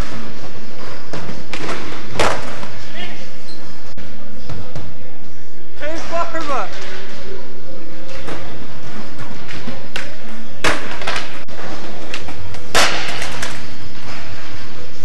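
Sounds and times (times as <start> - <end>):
skateboard wheels rolling: 0.0 - 5.7, 6.7 - 15.0
skateboard clattering impacts: 0.9 - 2.8, 8.1 - 11.4, 12.0 - 13.7.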